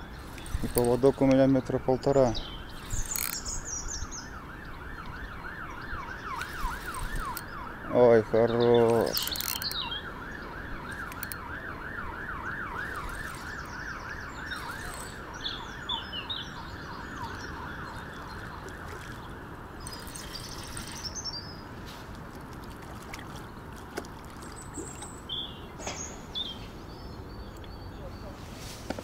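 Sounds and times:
spinning reel whirring: 0.0 - 1.6, 2.7 - 3.7, 6.3 - 7.5, 8.8 - 9.8, 10.9 - 11.4, 12.7 - 15.4, 19.8 - 21.2
birds chirping: 0.0 - 29.0.

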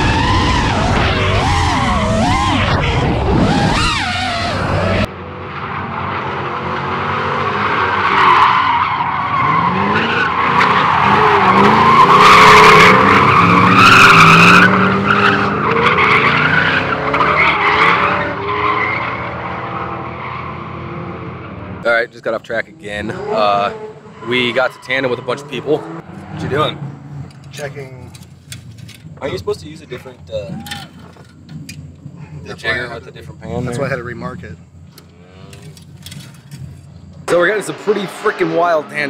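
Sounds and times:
car engines revving: 0.0 - 39.0
tyres squealing: 22.8 - 34.0.

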